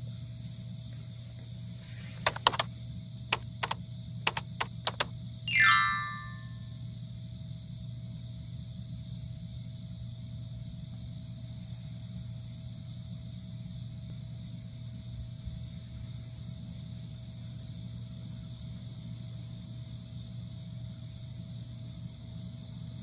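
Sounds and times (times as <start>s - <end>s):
crickets chirring: 0.0s - 6.2s.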